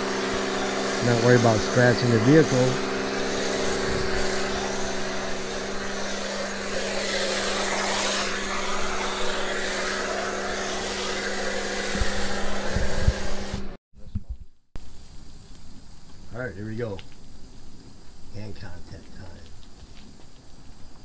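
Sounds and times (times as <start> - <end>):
foam spray hissing: 0.0 - 13.8
pressure washer humming: 0.0 - 13.8.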